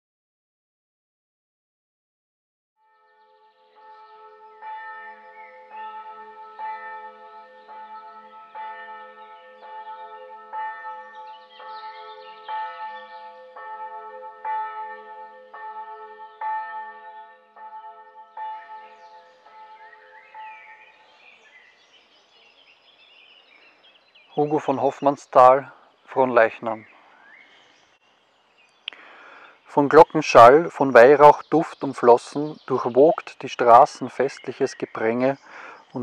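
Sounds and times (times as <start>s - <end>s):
church bells ringing: 2.8s - 21.8s, 24.3s - 26.9s, 29.4s - 36.0s.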